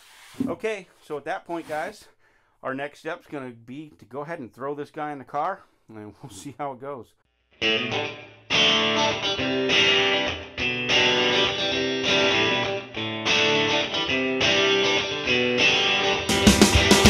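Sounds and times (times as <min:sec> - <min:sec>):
guitar playing chords: 0:07.6 - 0:17.0.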